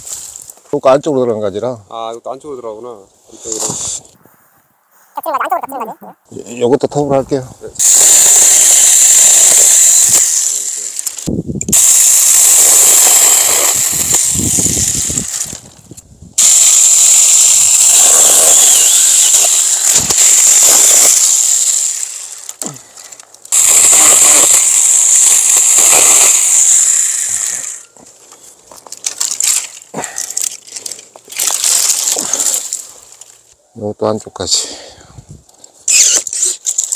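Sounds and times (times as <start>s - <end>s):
electric chainsaw cutting branch: 7.8s - 15.8s, 16.4s - 28.0s, 28.9s - 32.8s, 35.8s - 36.9s.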